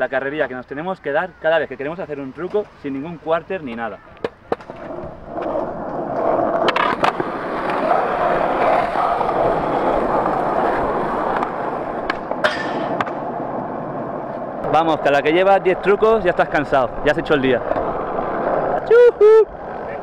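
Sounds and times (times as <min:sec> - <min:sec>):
skateboard wheels rolling on concrete: 0:00.0 - 0:20.0
skateboard clacks: 0:03.6 - 0:14.7
skateboard pop onto metal rail: 0:12.1 - 0:13.2.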